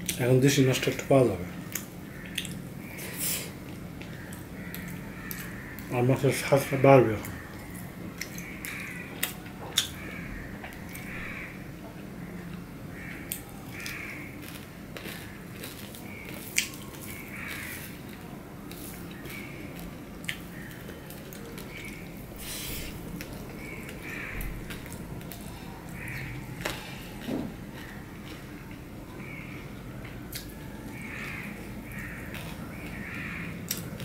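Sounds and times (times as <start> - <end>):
chewing and mouth sounds: 1.7 - 2.6, 13.2 - 33.0.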